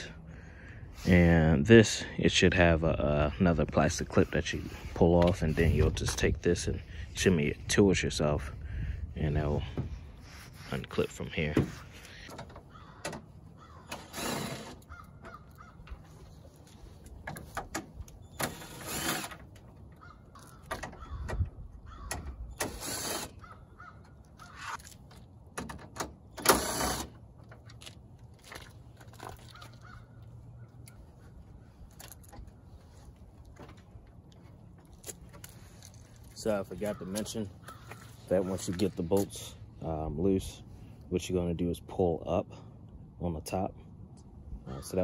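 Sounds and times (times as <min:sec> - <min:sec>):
crow cawing: 0:12.7 - 0:14.0, 0:14.9 - 0:15.9, 0:20.0 - 0:22.2, 0:23.4 - 0:24.8, 0:29.5 - 0:30.7, 0:36.8 - 0:38.2.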